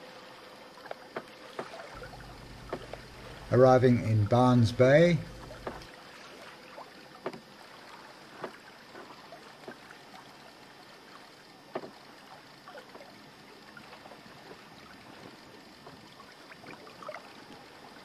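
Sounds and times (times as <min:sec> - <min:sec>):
water splashing against hull: 0:00.8 - 0:18.0
steady hiss: 0:02.0 - 0:05.9.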